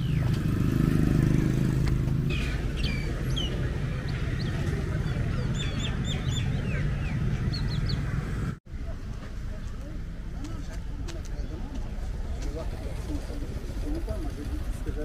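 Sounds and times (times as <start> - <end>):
small birds chirping: 0.0 - 8.6
vehicle passing: 0.0 - 9.0
road traffic hum: 0.0 - 15.0.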